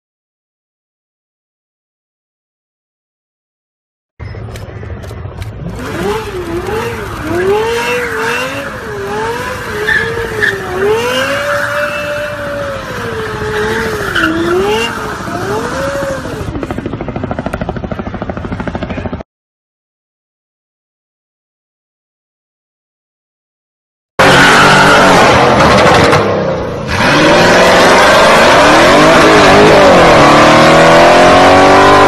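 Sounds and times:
car engine revving: 0:05.4 - 0:16.7, 0:24.2 - 0:32.0
fast pulsing engine sound: 0:12.6 - 0:19.2.

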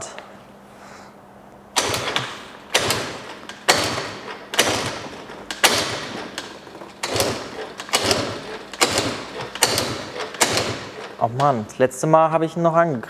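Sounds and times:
engine turning over: 0:01.8 - 0:11.6
scooter kickstart clattering: 0:01.8 - 0:11.7.

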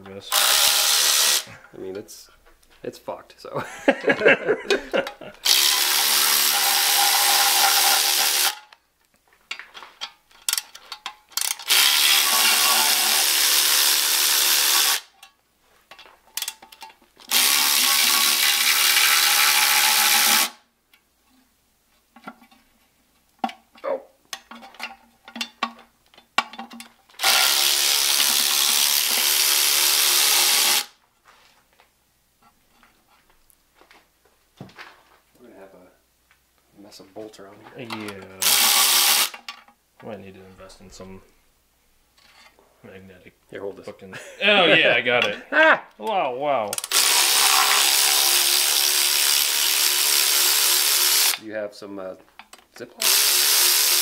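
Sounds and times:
cordless power tool whirring: 0:00.3 - 0:01.5, 0:05.4 - 0:08.6, 0:11.4 - 0:15.1, 0:17.3 - 0:20.6, 0:27.2 - 0:30.9, 0:38.4 - 0:39.4, 0:46.8 - 0:51.4, 0:53.0 - 0:54.0
clicks and clatter of tools: 0:09.0 - 0:11.7, 0:15.1 - 0:17.2, 0:24.3 - 0:27.1.

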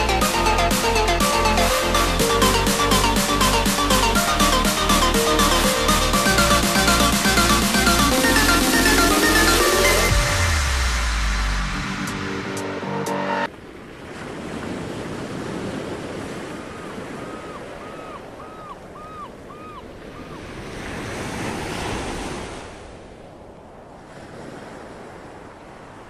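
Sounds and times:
music: 0:00.0 - 0:13.5
ocean waves washing: 0:00.0 - 0:26.0.

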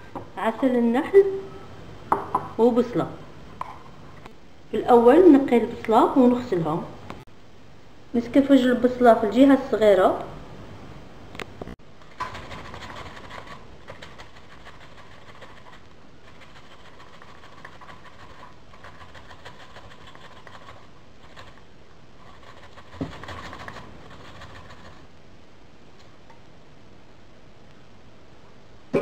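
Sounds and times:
onion grating on metal grater: 0:12.2 - 0:21.6, 0:22.2 - 0:25.1.

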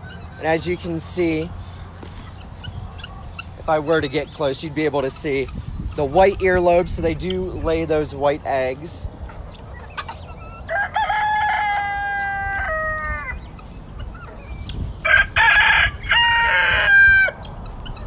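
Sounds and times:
rooster crowing: 0:10.6 - 0:13.4, 0:15.0 - 0:17.4.

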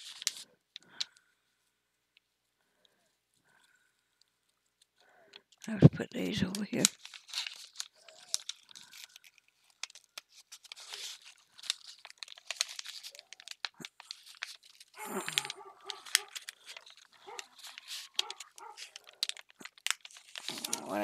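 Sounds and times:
plastic and paper crinkling: 0:00.0 - 0:01.2, 0:04.8 - 0:21.0
small clicks and taps: 0:06.4 - 0:20.8.

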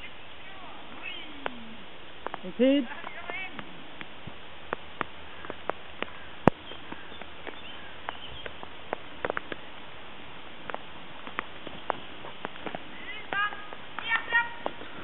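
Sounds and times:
faint bird chirps: 0:00.0 - 0:01.8, 0:06.1 - 0:08.7, 0:12.9 - 0:13.4
steady hiss: 0:00.0 - 0:15.0.

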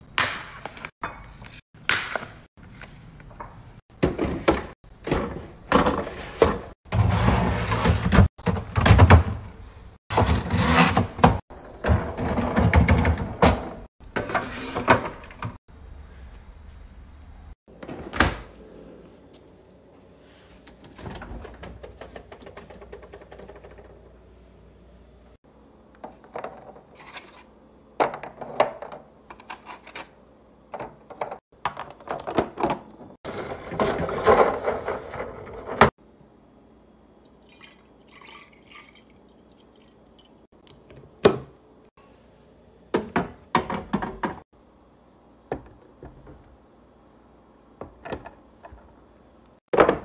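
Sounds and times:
containers knocking and clunking: 0:21.0 - 0:24.1, 0:42.9 - 0:44.4.

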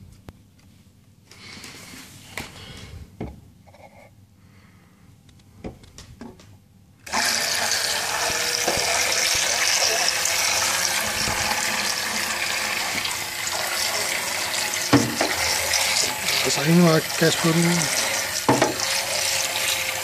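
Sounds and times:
faint motor hum: 0:06.7 - 0:20.0.

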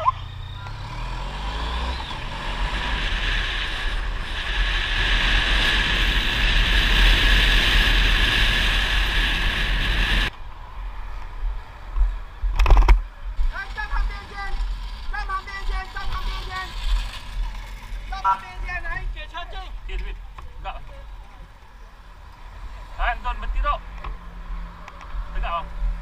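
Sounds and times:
motorcycle engine: 0:00.0 - 0:10.4, 0:11.4 - 0:26.0
wind noise on microphone: 0:01.9 - 0:10.3, 0:10.9 - 0:18.2.

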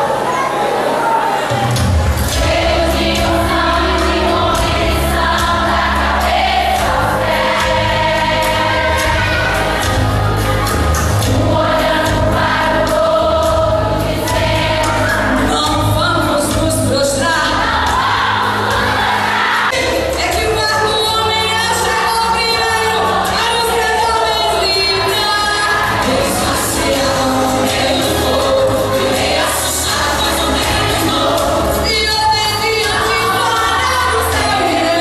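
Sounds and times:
voices singing along: 0:00.0 - 0:35.0
band accompaniment: 0:01.5 - 0:35.0
woman singing hymn into microphone: 0:20.2 - 0:35.0.

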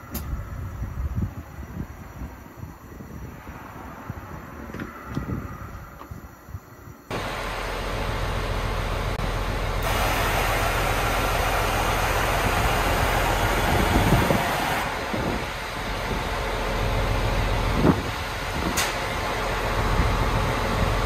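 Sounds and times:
diesel bus engine idling: 0:07.1 - 0:21.0
air suspension hissing: 0:09.8 - 0:16.5.

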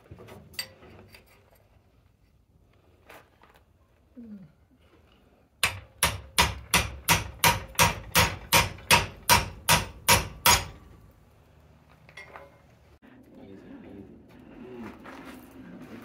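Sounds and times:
hammer striking steel: 0:05.6 - 0:10.9.

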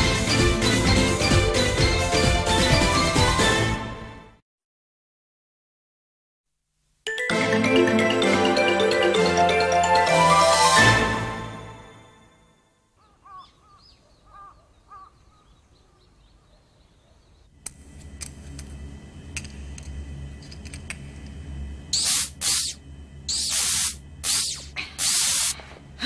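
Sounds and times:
crows cawing: 0:13.0 - 0:16.1
low machine hum: 0:17.5 - 0:26.0
machinery hissing: 0:17.8 - 0:26.0.

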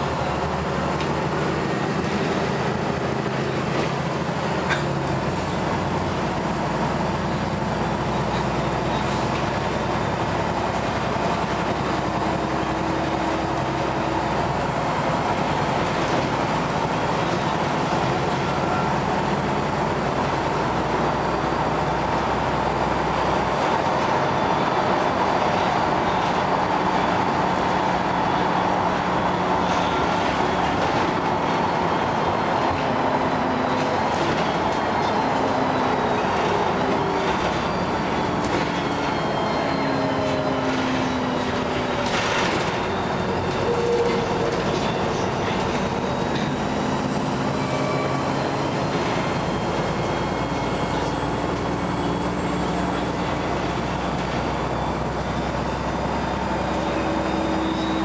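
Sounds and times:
bus engine and road noise: 0:00.0 - 0:58.0.

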